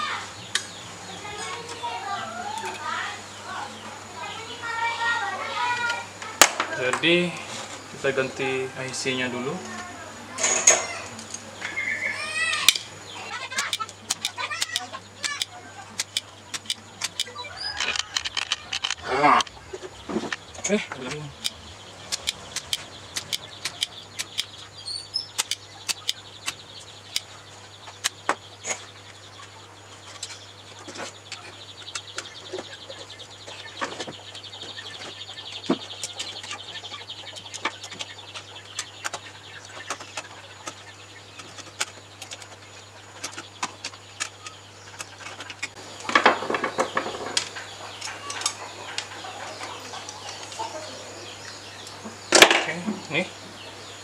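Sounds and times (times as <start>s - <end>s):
low electrical hum: 0.0s - 54.0s
tools clicking on circuit board: 13.6s - 19.0s, 21.4s - 24.6s, 25.4s - 27.3s.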